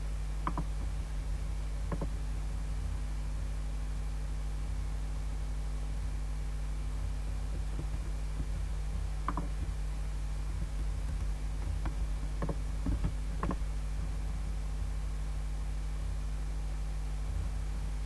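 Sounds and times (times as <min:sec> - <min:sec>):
electrical mains hum: 0:00.0 - 0:18.0
computer mouse and keyboard clicks: 0:00.4 - 0:00.9, 0:01.9 - 0:02.2, 0:07.5 - 0:09.8, 0:10.5 - 0:13.6.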